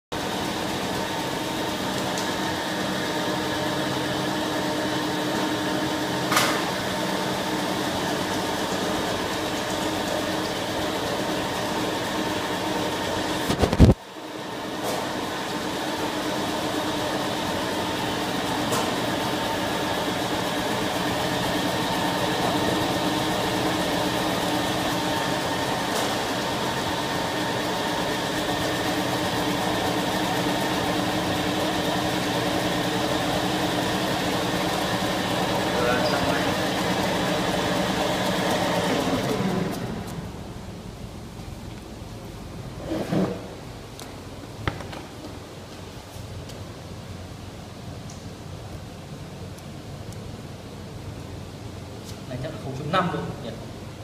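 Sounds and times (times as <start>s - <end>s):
slicing machine motor hum: 0.2s - 13.6s, 14.3s - 40.8s.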